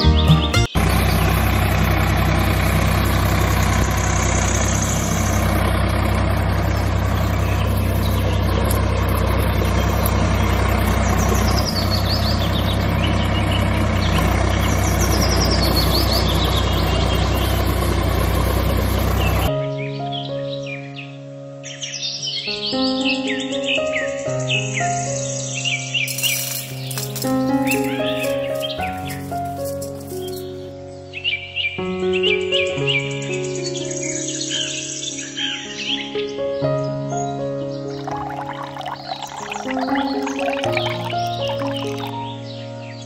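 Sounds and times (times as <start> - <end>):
music: 0.0 - 0.8, 19.5 - 43.0
tractor engine running: 0.0 - 19.5, 26.2 - 30.6, 38.0 - 42.3
faint bird chirps: 37.8 - 42.4.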